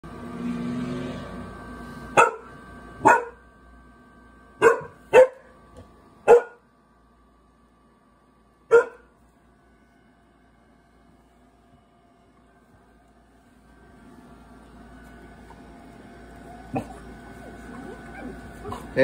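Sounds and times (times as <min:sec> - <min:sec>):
puppy barking: 0:02.2 - 0:03.4, 0:04.6 - 0:05.5, 0:06.3 - 0:06.6, 0:08.7 - 0:09.1.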